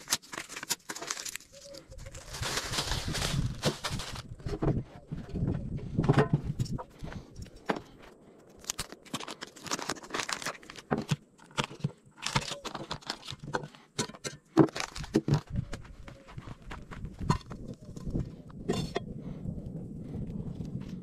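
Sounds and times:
paper wrapper tearing and crinkling: 0.0s - 4.3s, 8.6s - 13.5s, 14.7s - 15.4s.

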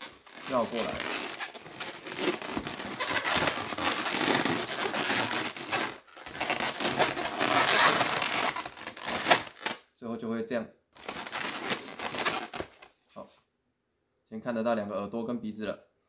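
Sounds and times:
balloons rubbing and crinkling: 0.0s - 9.8s, 11.0s - 12.9s.

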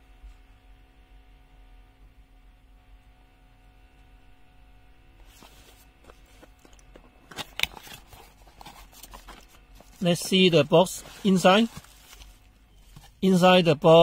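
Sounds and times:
cardboard box rustling and scraping: 5.2s - 13.3s.

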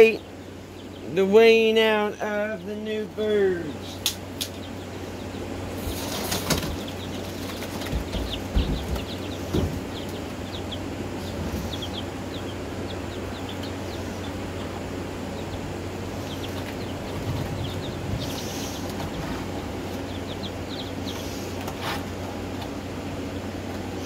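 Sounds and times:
chickens peeping: 0.0s - 24.0s
steady low hum: 0.0s - 24.0s
wing flapping: 5.8s - 10.3s, 16.3s - 22.7s
knocks: 7.8s - 9.9s.

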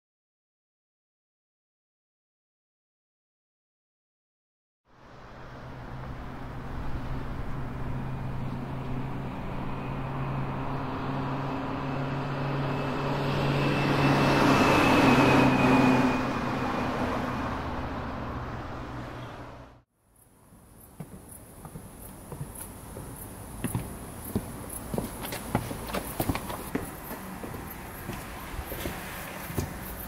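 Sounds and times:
vehicle passing: 4.9s - 19.8s, 21.1s - 30.0s.

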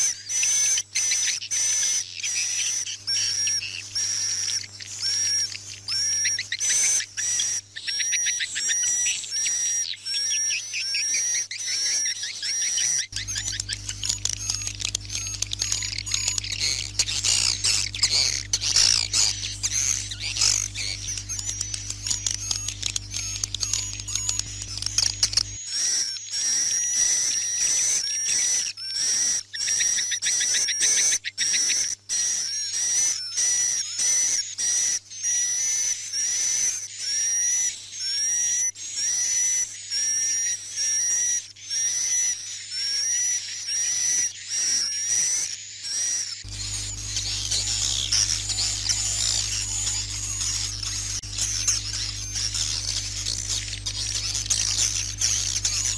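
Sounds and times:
high bird chirps: 0.0s - 55.9s
swiftlets twittering chorus: 0.0s - 55.9s
rapid clicks: 13.0s - 25.6s.

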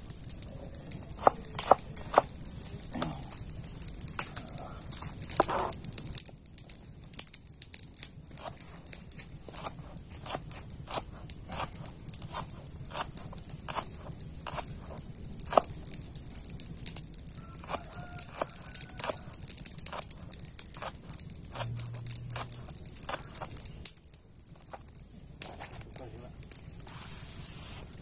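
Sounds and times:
knife chopping on plastic cutting board: 1.2s - 2.3s.

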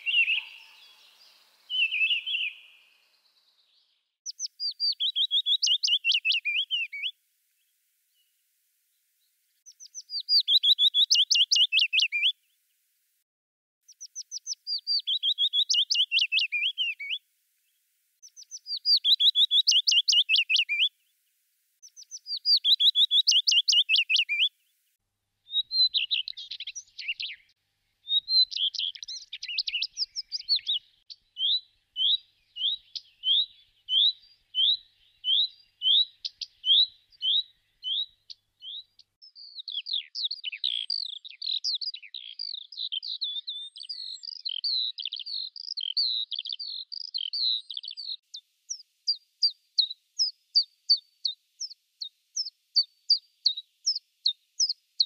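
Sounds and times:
redstart singing: 0.0s - 7.1s, 9.7s - 12.3s, 13.9s - 20.9s, 21.8s - 24.5s
warbler singing: 0.0s - 7.1s, 9.6s - 12.4s, 13.9s - 17.2s, 18.2s - 20.9s, 21.8s - 24.5s, 25.5s - 54.8s.

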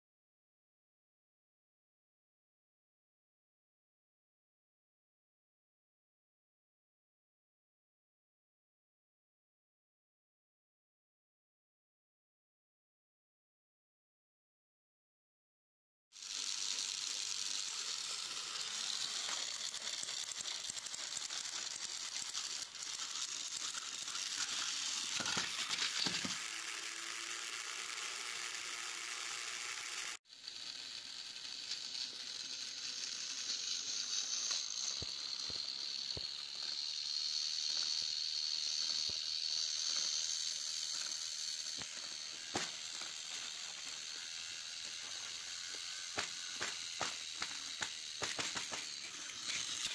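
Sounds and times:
toy train motors whirring: 16.1s - 49.9s.

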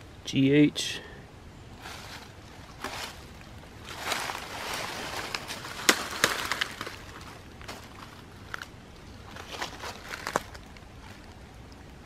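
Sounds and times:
footsteps crunching dry leaves: 1.8s - 11.2s
twigs cracking sharply: 3.9s - 10.8s.

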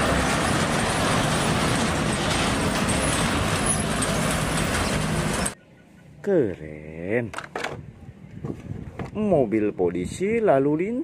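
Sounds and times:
truck engine: 0.0s - 5.6s
road traffic noise: 0.0s - 8.2s.

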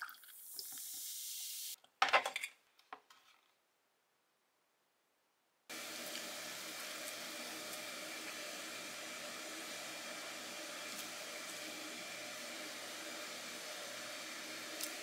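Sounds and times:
room tone hiss: 5.7s - 15.0s.

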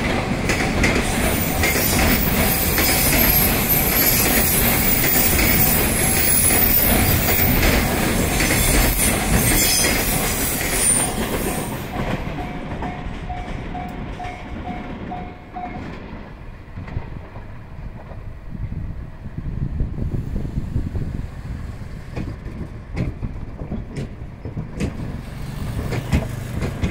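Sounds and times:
train wheel squeal: 0.8s - 15.9s
freight wagons rolling past: 22.0s - 26.9s.

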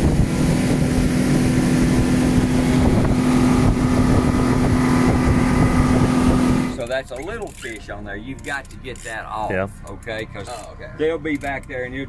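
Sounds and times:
wind buffeting microphone: 0.0s - 6.8s
motorboat engine running: 0.0s - 12.0s.

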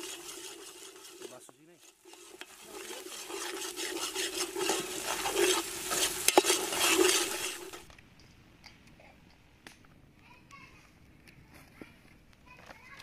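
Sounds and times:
food sizzling in a pot: 0.0s - 7.9s
ladle scraping a pot: 0.0s - 7.9s.

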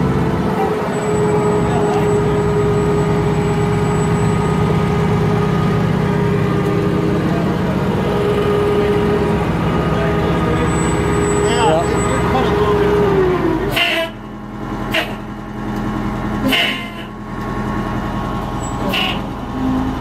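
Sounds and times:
steady whine: 0.0s - 13.6s
forklift engine running: 0.0s - 20.0s.

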